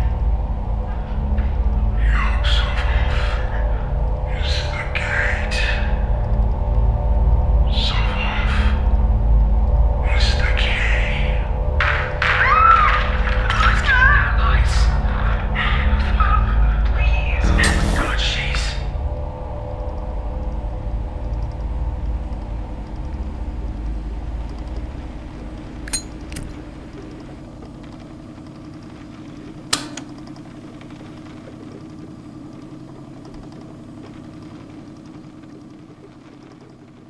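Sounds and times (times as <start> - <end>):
low rumbling drone: 0.0 - 12.3, 13.0 - 29.7
lighter clicking: 25.9 - 26.5.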